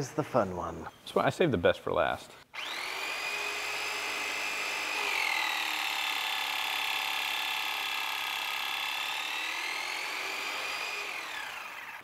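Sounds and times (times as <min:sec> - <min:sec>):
hydraulic pump whining: 0:02.6 - 0:12.0.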